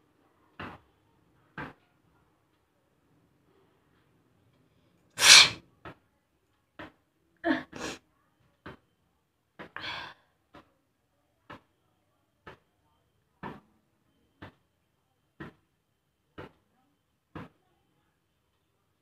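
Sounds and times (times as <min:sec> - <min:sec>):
sharp sniffs: 0:05.2 - 0:05.6
woman sneezing: 0:05.2 - 0:05.6.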